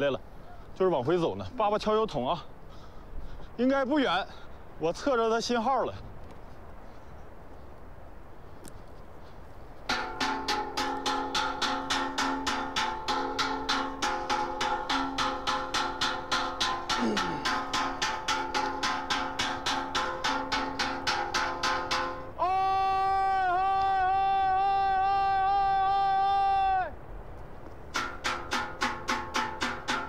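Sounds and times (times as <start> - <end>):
stick beating metal bucket: 9.9 - 22.4, 27.9 - 30.0.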